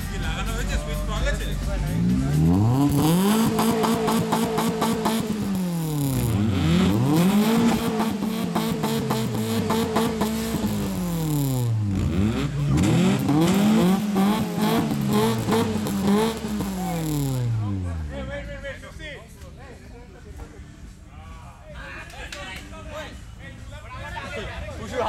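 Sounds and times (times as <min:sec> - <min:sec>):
car engine revving: 0:00.0 - 0:18.6.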